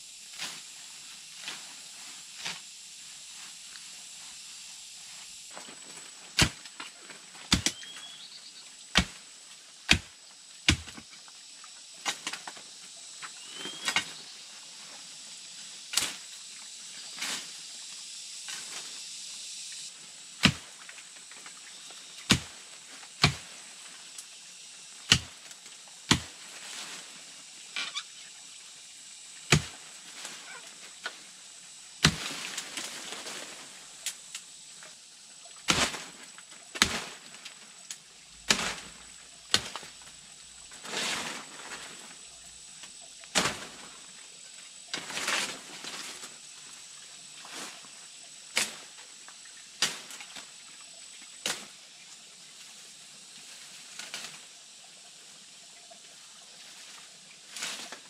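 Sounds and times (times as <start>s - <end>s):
leaves and stems rustling: 0.3s - 8.4s, 19.8s - 28.1s, 29.4s - 35.0s, 35.7s - 44.2s, 44.8s - 48.0s, 56.6s - 58.0s
machete chopping vines: 6.3s - 8.0s, 8.9s - 9.2s, 9.9s - 11.1s, 12.0s - 12.5s, 13.6s - 14.2s, 15.9s - 16.2s, 20.4s - 20.9s, 22.2s - 22.6s, 23.2s - 23.6s, 25.0s - 26.4s, 29.5s - 29.9s, 32.0s - 33.0s, 35.6s - 37.3s, 38.4s - 39.9s, 43.3s - 43.9s, 48.5s - 48.9s, 49.8s - 50.5s, 51.4s - 51.7s.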